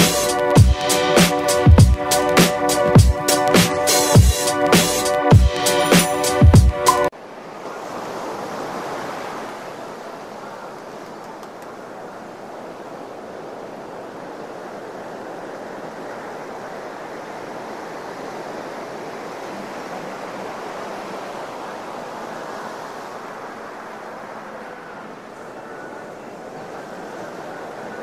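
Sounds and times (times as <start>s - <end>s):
ocean surf washing on sand: 7.1s - 28.0s.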